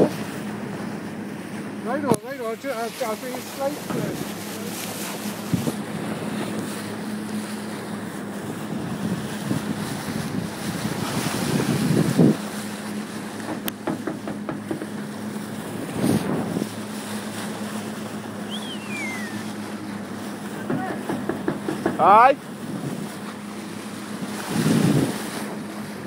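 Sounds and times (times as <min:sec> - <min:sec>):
boat engine running: 0:00.0 - 0:26.0
water rushing past hull: 0:00.0 - 0:26.0
wind buffeting microphone: 0:03.1 - 0:12.7, 0:15.5 - 0:17.2, 0:20.7 - 0:23.3, 0:24.0 - 0:26.0
whistle falling in pitch: 0:18.5 - 0:19.4.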